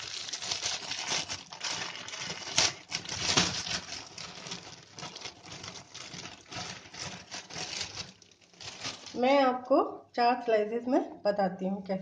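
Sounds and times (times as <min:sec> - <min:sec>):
sharp crackles: 0:00.0 - 0:09.2
plastic and foil crinkling: 0:00.0 - 0:09.6.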